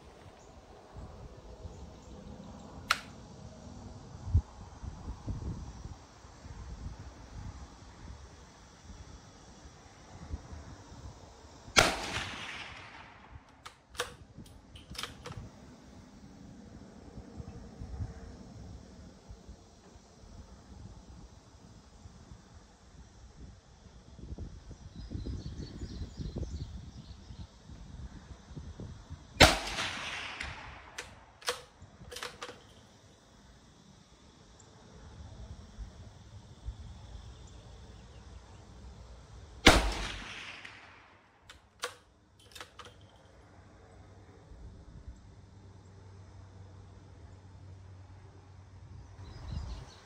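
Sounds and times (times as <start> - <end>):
quiet sharp clicks: 2.6 - 3.2, 30.2 - 32.7, 40.4 - 43.1
faint sharp cracks: 2.8 - 3.2
rifle shot echoing: 11.8 - 13.4, 29.4 - 32.5, 39.6 - 41.2.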